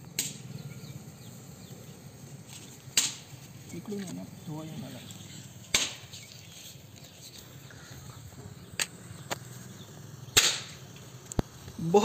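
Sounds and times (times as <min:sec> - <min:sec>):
firework cracks: 0:00.0 - 0:00.6, 0:02.4 - 0:12.0.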